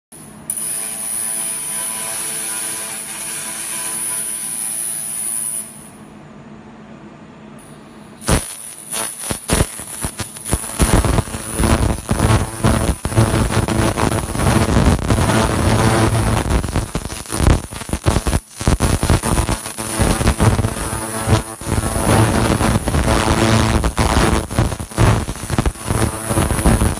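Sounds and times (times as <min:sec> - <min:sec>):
laser cleaning gun crackling: 0:08.2 - 0:26.9.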